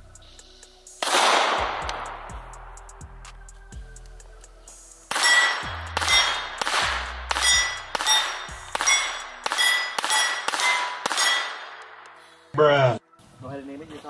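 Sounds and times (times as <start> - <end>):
pistol shots: 1.0 - 2.3, 5.1 - 12.0
steel plate target ringing: 5.1 - 11.9.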